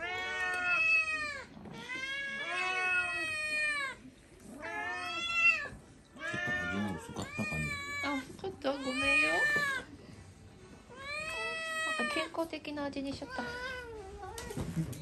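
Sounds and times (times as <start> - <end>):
kitten meowing: 4.6 - 8.2.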